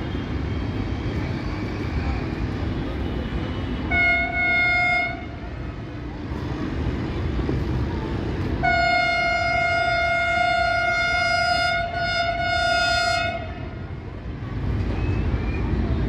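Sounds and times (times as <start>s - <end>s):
locomotive horn blasts: 3.8s - 5.4s, 8.6s - 13.8s.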